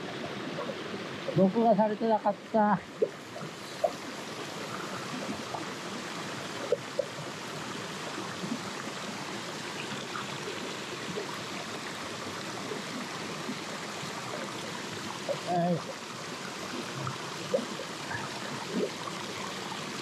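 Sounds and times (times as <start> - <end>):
stream splashing over rocks: 0.0 - 20.0.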